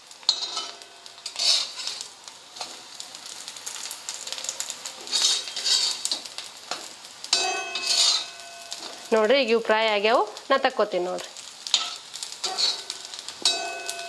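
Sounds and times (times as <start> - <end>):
oil sizzling on griddle: 0.0 - 14.0
metal spatula scraping pan: 0.2 - 2.7, 5.0 - 6.3, 7.3 - 9.1, 11.7 - 14.0.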